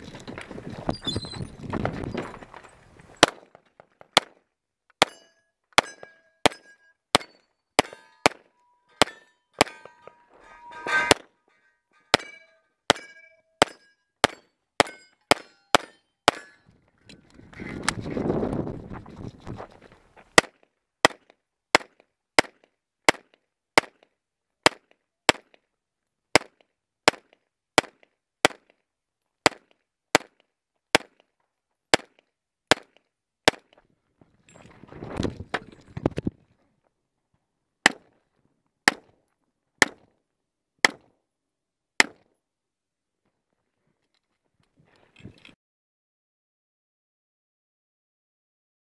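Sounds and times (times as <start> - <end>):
scuffling noise: 17.5 - 20.4.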